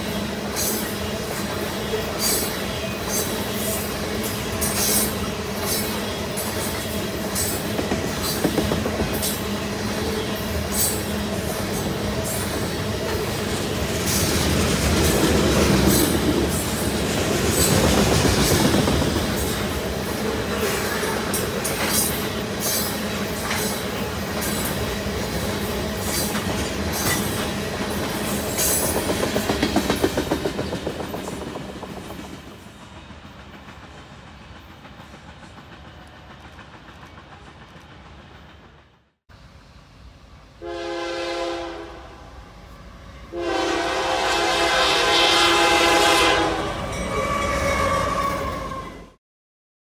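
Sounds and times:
train wheels clicking over rail joints: 0.4 - 39.1
locomotive air horn blasts: 40.6 - 48.6.

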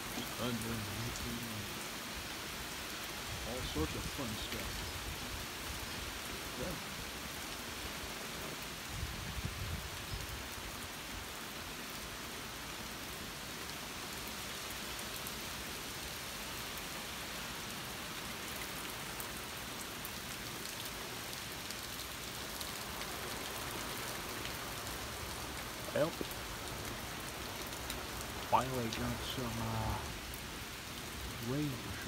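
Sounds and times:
steady rain falling: 0.0 - 32.0.

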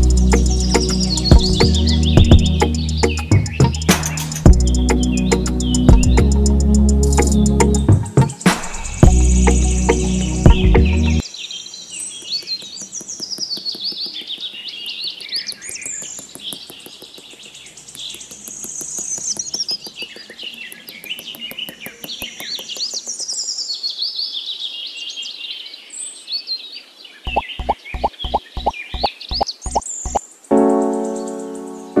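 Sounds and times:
fast ticking bird trill: 0.0 - 10.7, 12.0 - 23.3, 27.3 - 30.2
birds chirping and whistling: 0.0 - 24.7, 27.3 - 30.2.

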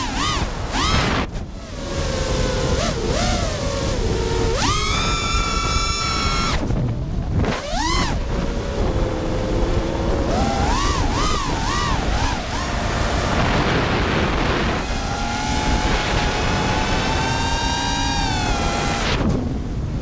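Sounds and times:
drone motors whining: 0.0 - 20.0
wind rush on microphone: 0.0 - 20.0.

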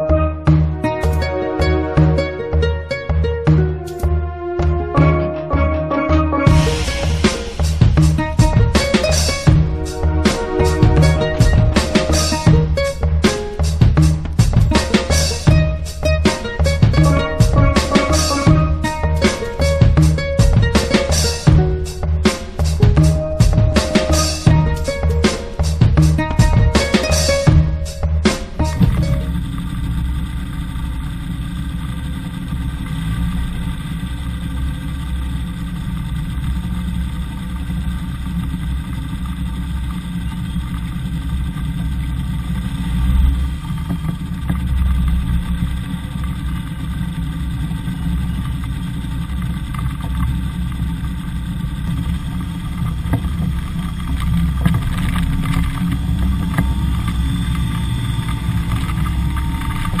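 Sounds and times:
faint rising and falling tone: 0.0 - 31.2, 51.3 - 60.0
small aircraft engine idling: 0.0 - 60.0.

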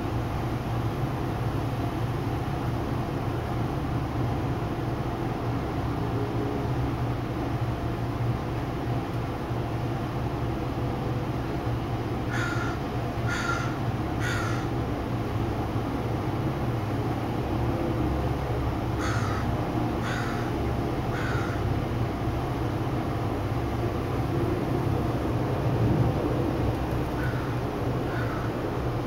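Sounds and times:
city background hum: 0.0 - 29.0
crow cawing: 12.3 - 14.8, 19.0 - 20.5, 21.1 - 21.7, 27.2 - 28.6.

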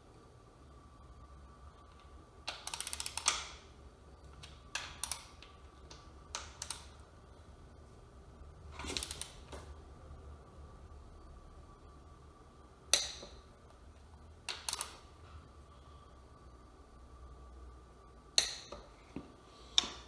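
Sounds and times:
ratchet clicks: 2.5 - 3.6, 4.4 - 5.5, 14.5 - 15.0.

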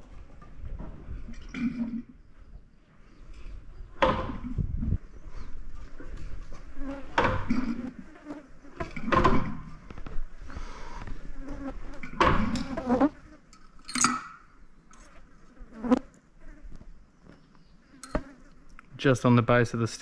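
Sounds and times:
flies buzzing: 6.6 - 9.6, 10.4 - 13.5, 15.0 - 18.7.

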